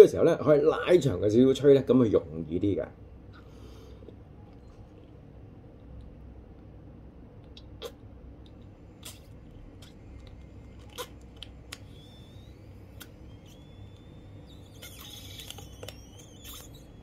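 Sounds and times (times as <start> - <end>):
balloon rubber squeaking: 10.8 - 17.0.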